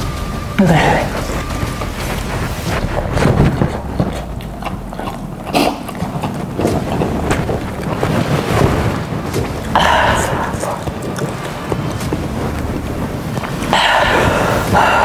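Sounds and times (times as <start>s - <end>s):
breath blowing on microphone: 0.0s - 15.0s
person panting through mouth: 9.7s - 11.5s, 13.7s - 15.0s.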